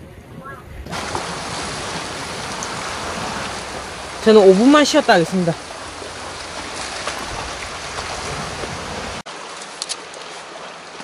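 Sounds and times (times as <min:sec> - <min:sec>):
outdoor hiss: 0:00.9 - 0:09.2
sea water washing against rocks: 0:00.9 - 0:11.0.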